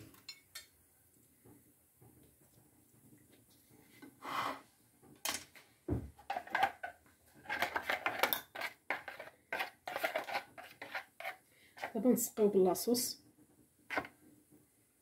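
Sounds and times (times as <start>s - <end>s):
dull thump on countertop: 5.9s - 6.2s
dishes clicking and knocking: 6.2s - 10.3s.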